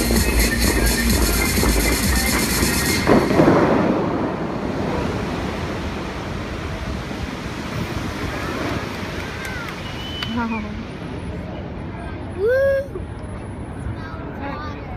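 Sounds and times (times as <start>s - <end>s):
show music: 0.0s - 3.8s
fountain water rushing and splashing: 0.0s - 12.9s.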